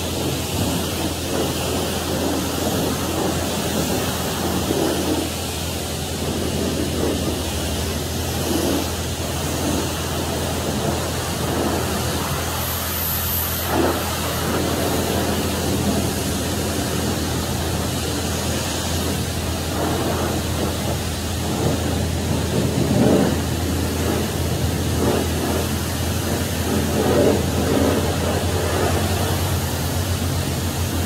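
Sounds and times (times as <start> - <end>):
constant low hum: 0.0 - 31.0
pressure washer spray hissing: 0.0 - 31.0.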